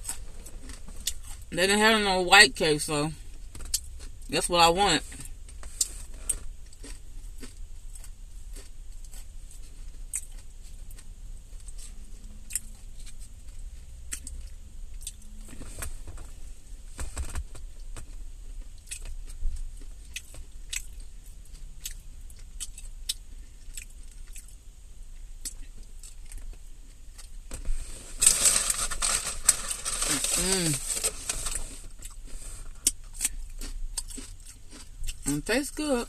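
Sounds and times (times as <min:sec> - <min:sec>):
chewing salad: 0:00.0 - 0:01.6, 0:05.2 - 0:15.7, 0:18.0 - 0:36.0.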